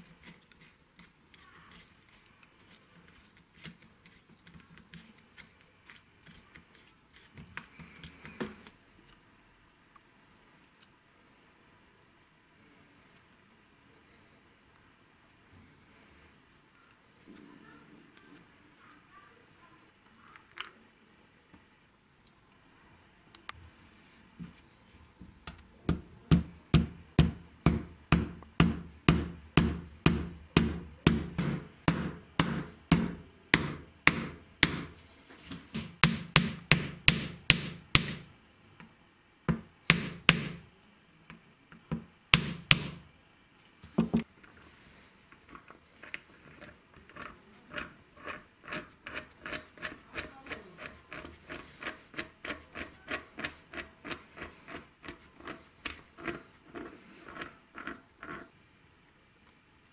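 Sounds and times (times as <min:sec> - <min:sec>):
hammer striking metal punch: 0:25.9 - 0:35.0, 0:35.8 - 0:38.3, 0:39.5 - 0:40.6, 0:42.4 - 0:43.0.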